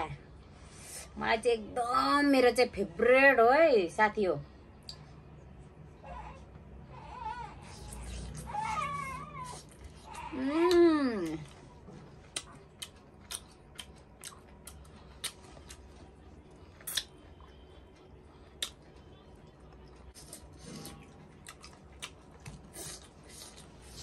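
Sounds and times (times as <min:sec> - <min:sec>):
wet chewing mouth sounds: 0:07.6 - 0:24.0.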